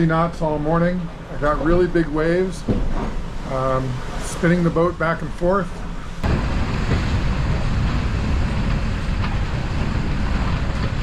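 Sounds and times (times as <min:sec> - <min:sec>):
rough sea rushing: 0:00.0 - 0:11.0
wind buffeting microphone: 0:05.9 - 0:11.0.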